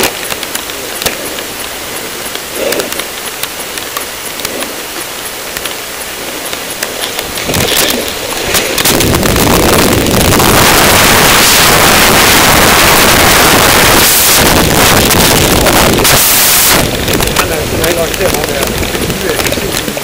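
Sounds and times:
wind buffeting microphone: 0:06.6 - 0:20.0.

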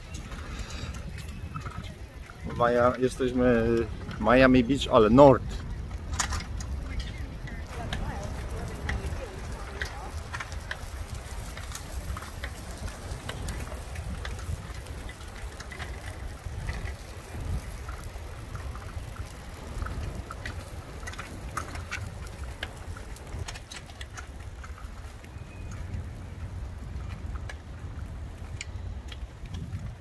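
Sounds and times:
wind buffeting microphone: 0:00.0 - 0:30.0
light clicks and ticks: 0:00.1 - 0:30.0.

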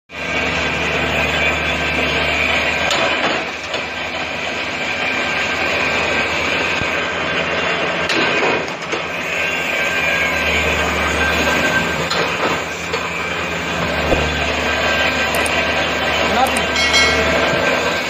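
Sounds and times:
workshop machinery din: 0:00.1 - 0:18.0
sharp metal knocks: 0:16.6 - 0:17.7.

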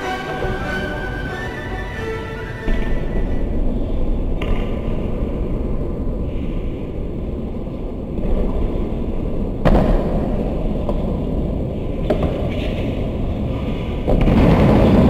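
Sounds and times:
low rumbling background noise: 0:00.0 - 0:15.0
thump: 0:09.6 - 0:10.2.

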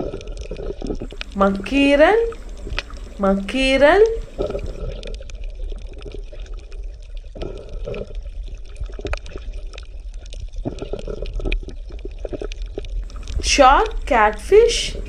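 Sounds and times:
underwater bubbling and gurgling: 0:00.0 - 0:01.4, 0:02.2 - 0:03.2, 0:04.0 - 0:14.1
crackling clicks: 0:00.3 - 0:01.4, 0:02.3 - 0:03.2, 0:10.6 - 0:14.1.

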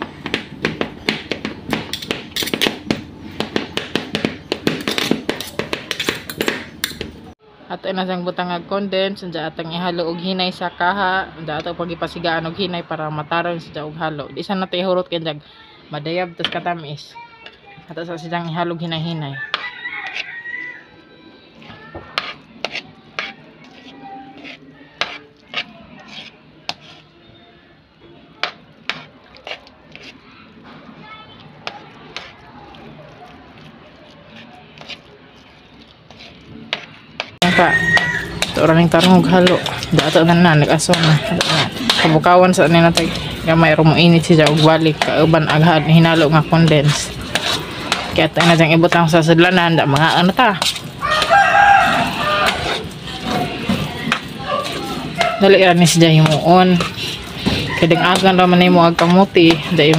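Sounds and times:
metal spoon scraping a wok: 0:01.7 - 0:02.9, 0:04.2 - 0:07.1, 0:18.9 - 0:20.9, 0:21.6 - 0:27.5, 0:28.4 - 0:30.6, 0:31.4 - 0:59.9.

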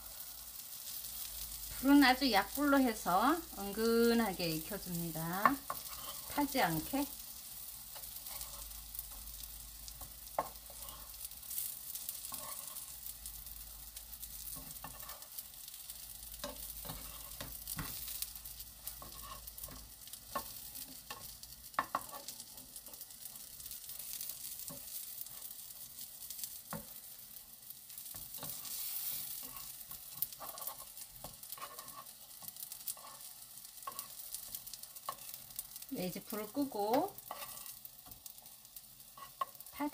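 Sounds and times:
food sizzling in a pan: 0:00.0 - 0:39.9.

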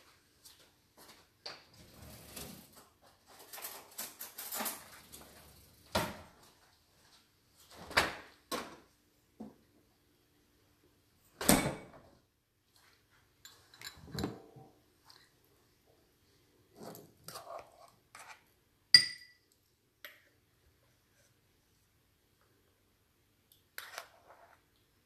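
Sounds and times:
knocks and clunks at kitchen cabinets: 0:05.9 - 0:06.4.

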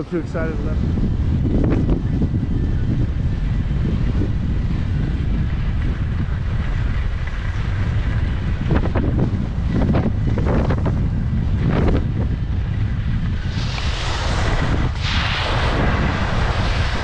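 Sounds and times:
wind buffeting microphone: 0:00.0 - 0:17.0
skis scraping on snow: 0:13.3 - 0:17.0
skis hissing on snow: 0:13.4 - 0:17.0.

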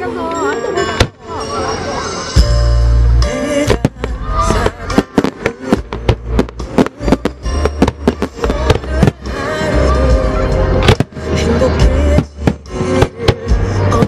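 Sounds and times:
loud music: 0:00.8 - 0:14.0
fireworks bursting: 0:03.3 - 0:14.0.

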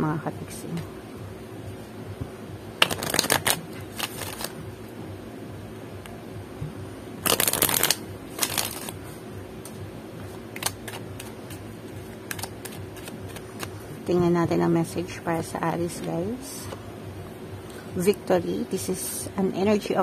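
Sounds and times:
cards shuffling: 0:02.8 - 0:04.6, 0:07.2 - 0:13.9.

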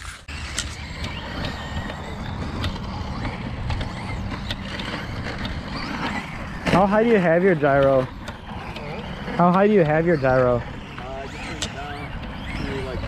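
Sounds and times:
motor whine: 0:00.0 - 0:13.0
rc truck motor and tyre noise: 0:00.0 - 0:13.0.

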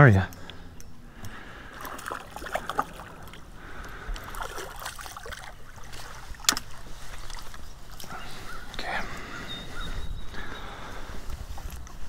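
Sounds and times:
water sloshing: 0:01.2 - 0:09.4
fish splashing at surface: 0:01.7 - 0:03.4, 0:04.2 - 0:07.6.

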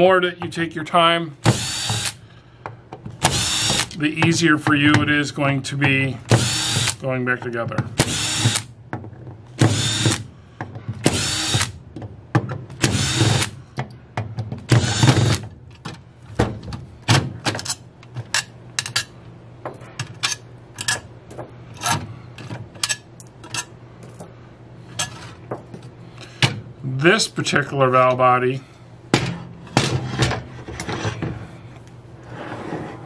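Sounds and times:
cordless drill backing out bolts: 0:03.3 - 0:04.0.

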